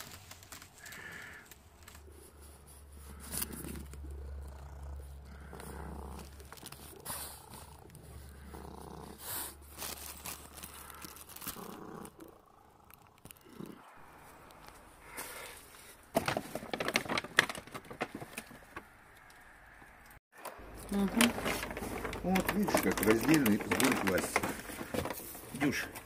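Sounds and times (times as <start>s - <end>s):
soft clicks and rustles: 0.0s - 4.0s, 14.3s - 26.0s
cat purring: 0.8s - 14.1s, 20.7s - 25.9s.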